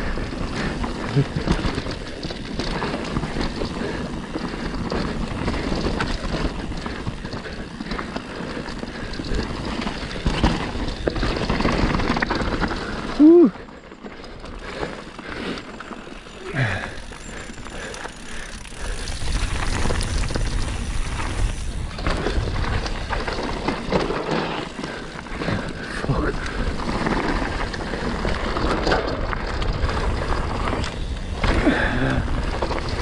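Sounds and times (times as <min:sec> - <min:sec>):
bike rattling over bumps: 0:00.0 - 0:33.0
bike tyres on dirt: 0:00.0 - 0:33.0
wind buffeting microphone: 0:18.6 - 0:23.7.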